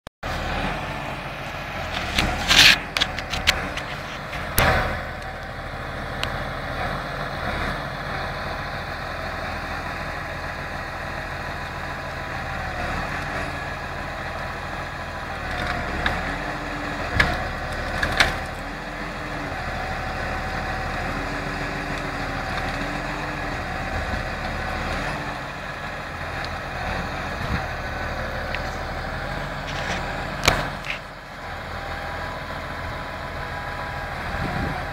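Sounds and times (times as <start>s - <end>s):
tractor engine running: 0.2s - 34.9s
logs cracking and knocking: 1.6s - 5.6s, 15.4s - 25.2s, 28.4s - 31.2s.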